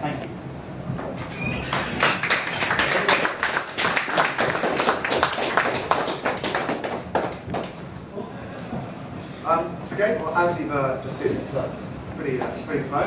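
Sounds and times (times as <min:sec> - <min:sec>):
audience applauding: 0:01.6 - 0:08.0.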